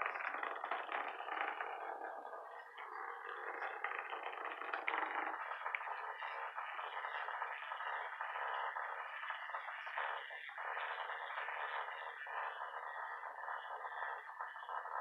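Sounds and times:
vibrating toy buzzing rattle: 0:00.0 - 0:12.0.

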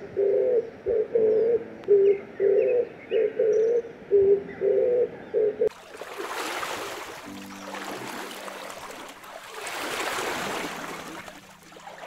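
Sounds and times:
dove cooing: 0:00.0 - 0:05.7
flowing water rushing: 0:05.7 - 0:12.0.

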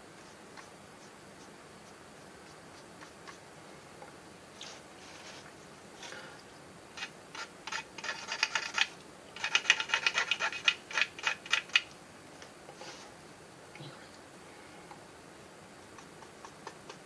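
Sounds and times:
wooden stick rattling against model car: 0:07.0 - 0:11.9.

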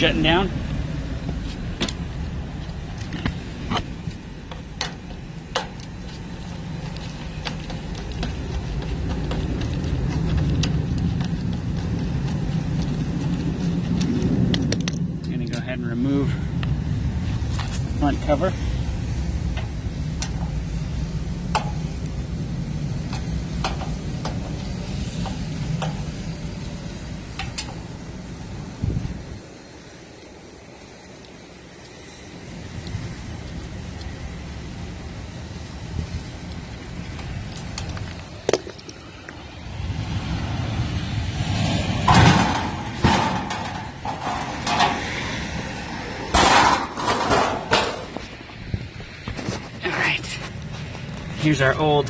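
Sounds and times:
steady low rumble: 0:00.0 - 0:52.0
metal panels clattering: 0:42.0 - 0:45.4, 0:46.3 - 0:48.3.

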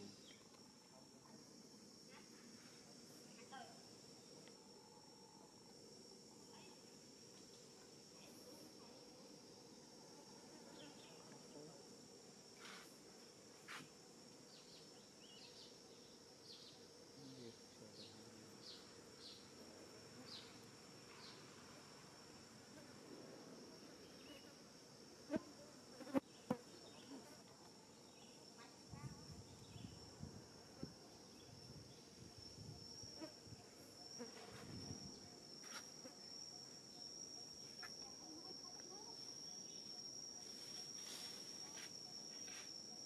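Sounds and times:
high-pitched insect drone: 0:27.7 - 0:43.0.

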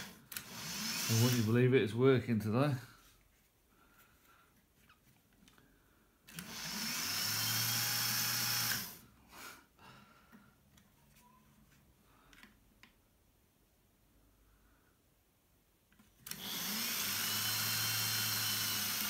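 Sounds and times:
drill motor spinning: 0:00.0 - 0:01.5, 0:06.3 - 0:09.0, 0:16.2 - 0:19.0.

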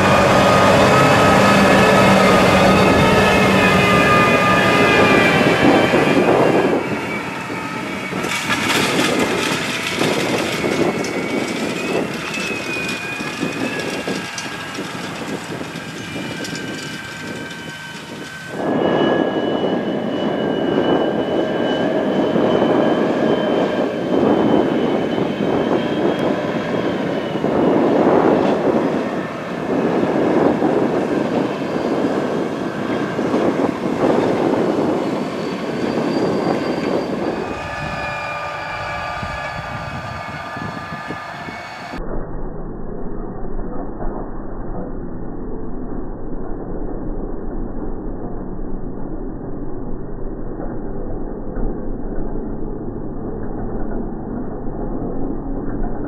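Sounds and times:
tractor diesel engines under load: 0:00.0 - 0:42.0
cultivator rumbling and rattling: 0:08.1 - 0:18.6.

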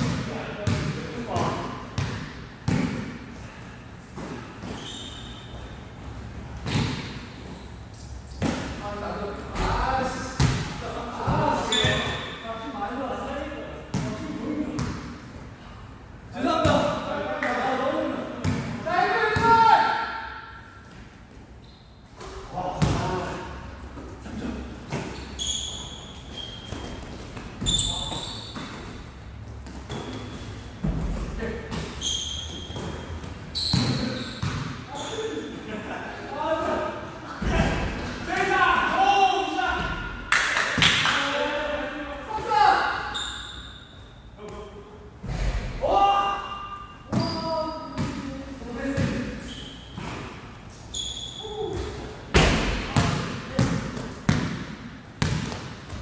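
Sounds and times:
sneaker squeak: 0:04.1 - 0:08.8, 0:11.4 - 0:12.4, 0:21.6 - 0:23.0, 0:24.9 - 0:35.6, 0:42.6 - 0:44.8, 0:46.4 - 0:48.3, 0:48.9 - 0:52.1
basketball bouncing on wood floor: 0:51.8 - 0:56.0.

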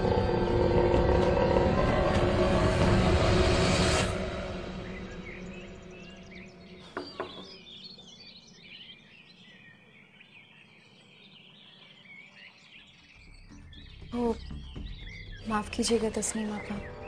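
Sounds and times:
small birds chirping: 0:04.6 - 0:17.0.

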